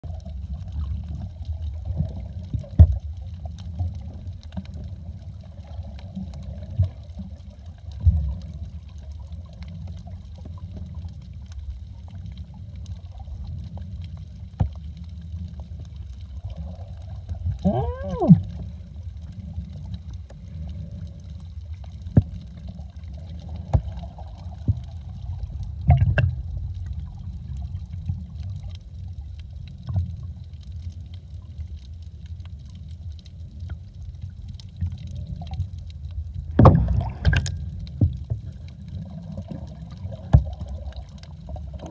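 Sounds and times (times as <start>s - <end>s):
low underwater rumble: 0.0s - 41.9s
underwater clicks and knocks: 21.9s - 22.8s, 23.6s - 26.6s, 36.4s - 38.7s, 39.4s - 41.9s.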